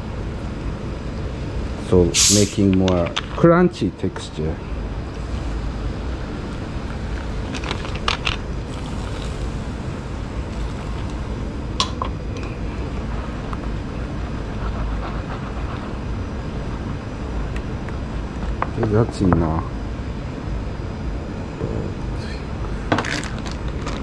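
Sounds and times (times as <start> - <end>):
low background rumble: 3.1 - 19.0.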